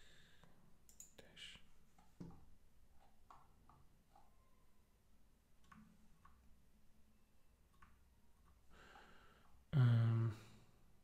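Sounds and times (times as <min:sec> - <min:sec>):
faint computer mouse clicks: 0:00.9 - 0:01.2.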